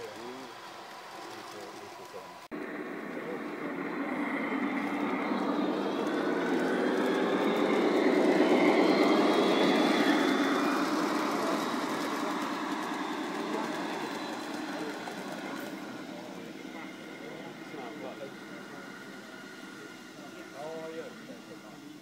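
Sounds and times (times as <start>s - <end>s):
model train wheels rolling on rails: 0.0s - 22.0s.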